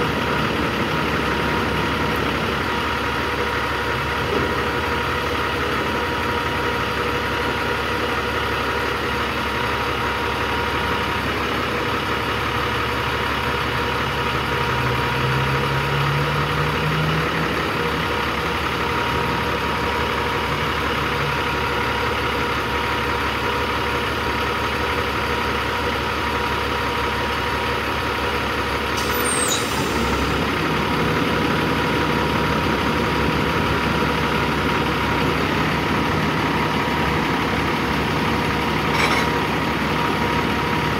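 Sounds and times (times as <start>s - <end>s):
diesel truck idling: 0.0s - 40.9s
brief high chirp: 29.0s - 30.1s.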